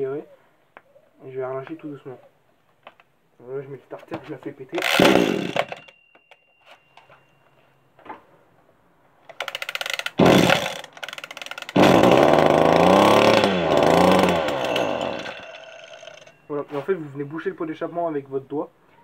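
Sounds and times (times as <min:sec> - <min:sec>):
two-stroke engine revving: 0:04.8 - 0:05.6, 0:10.1 - 0:16.3
recoil starter cord rattling: 0:04.8 - 0:06.4, 0:09.3 - 0:16.5.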